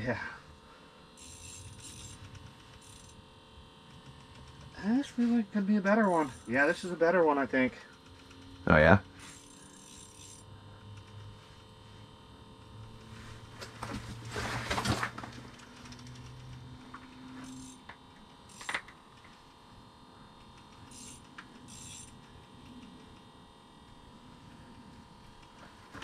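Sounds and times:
low hum: 0.0 - 26.0
fishing reel clicks and rattles: 1.2 - 3.2, 3.9 - 11.3, 15.5 - 19.3, 20.4 - 23.2.

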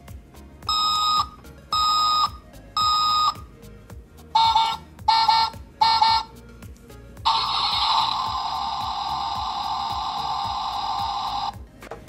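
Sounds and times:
toy electronic beeps: 0.7 - 3.5, 4.4 - 6.3, 7.3 - 11.6.

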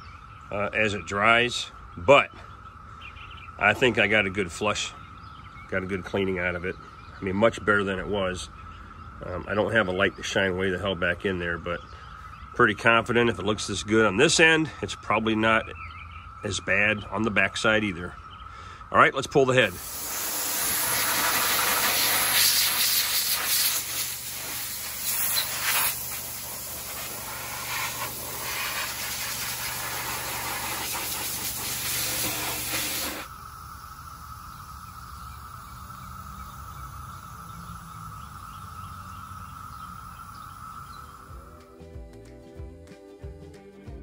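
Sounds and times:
hose nozzle spraying water: 19.7 - 33.4.

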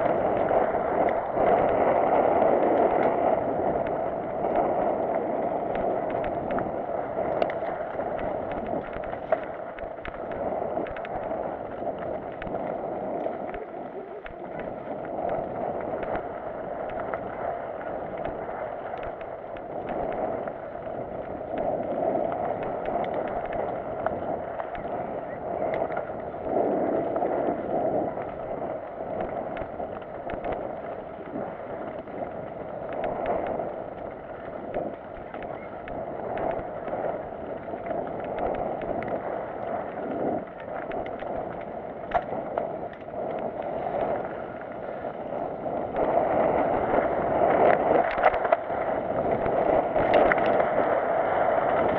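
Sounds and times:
bike clicks and rattles: 0.0 - 51.9
wind and tyre noise: 0.0 - 51.9.

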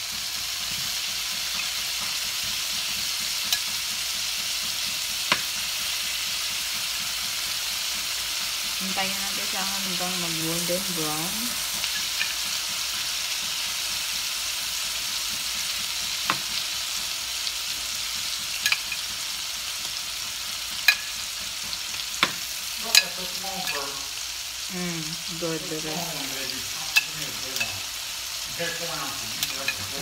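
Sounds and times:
chicken sizzling in frying pan: 0.0 - 30.0.

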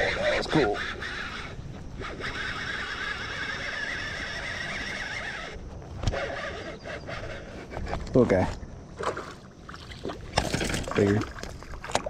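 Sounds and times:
fishing reel spool whining: 0.0 - 7.5.

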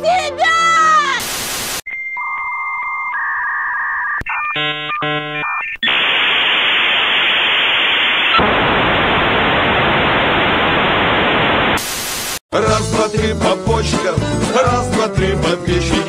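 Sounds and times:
loud static hiss: 1.2 - 1.8, 5.8 - 12.4
steady electronic tones: 1.6 - 11.8.

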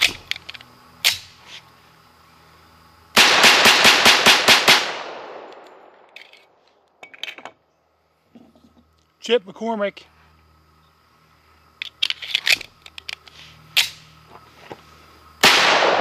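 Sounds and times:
pistol shots: 3.2 - 5.8, 15.4 - 16.0.

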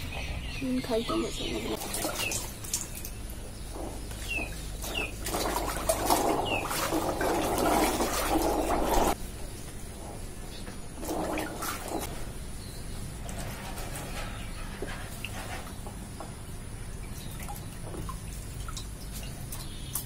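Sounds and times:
bird chirps: 0.0 - 5.2
water splashing in plastic tub: 1.3 - 9.2, 10.8 - 12.3, 14.8 - 20.0.

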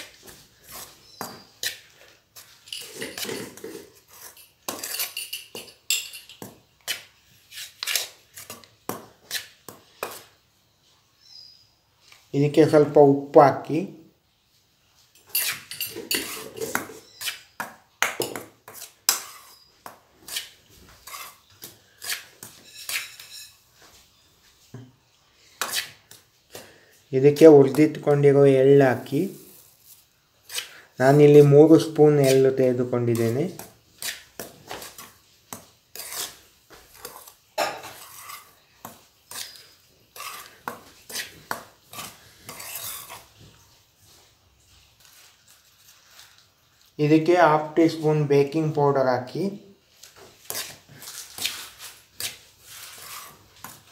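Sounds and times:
spoon scraping through flour: 0.0 - 10.5, 15.0 - 48.6, 49.9 - 53.9
spoon scraping and clinking in pan: 0.7 - 8.6, 15.1 - 17.5, 18.1 - 19.7, 20.3 - 23.8, 35.9 - 43.3
spoon clinking against metal pan: 4.7 - 6.4.

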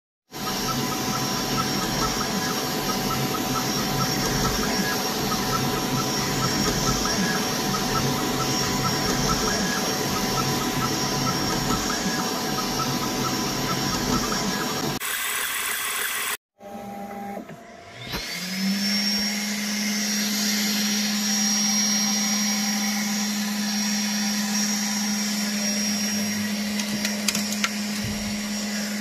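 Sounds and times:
whir of fans and motors: 0.3 - 15.0, 16.6 - 29.0
high whines: 0.3 - 16.4
quick print head ticks: 0.4 - 15.0.

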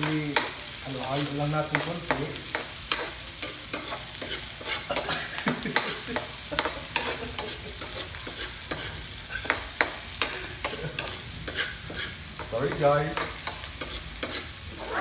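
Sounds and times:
oil sizzling: 0.0 - 15.0
metal spatula scraping a wok: 2.5 - 5.2, 6.6 - 15.0.

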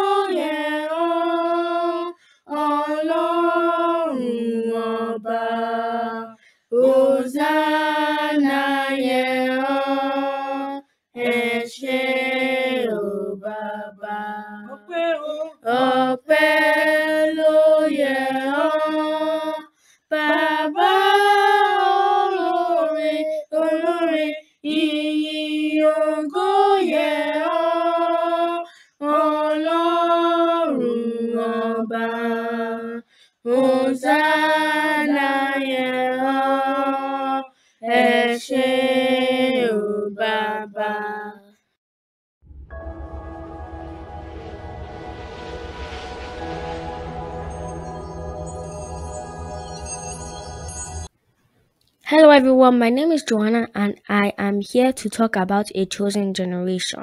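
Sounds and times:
children singing unaccompanied: 0.0 - 6.2, 20.2 - 24.3, 25.2 - 32.9.

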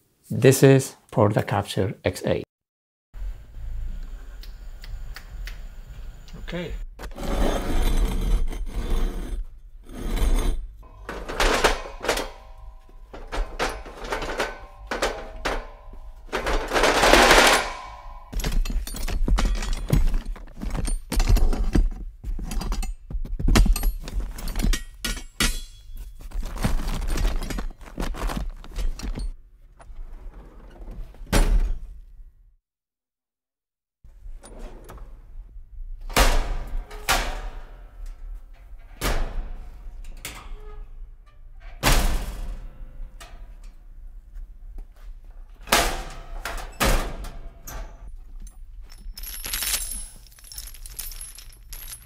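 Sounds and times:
metal scraping: 7.0 - 21.1
metal hardware clanking in a box: 10.8 - 29.4, 47.7 - 52.0.

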